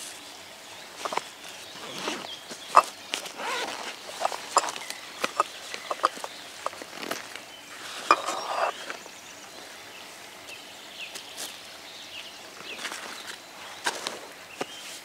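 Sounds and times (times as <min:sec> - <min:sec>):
metal cup scraping out of pot: 0:01.8 - 0:06.3, 0:08.0 - 0:08.8
metal pot and cup clicking: 0:04.2 - 0:06.3.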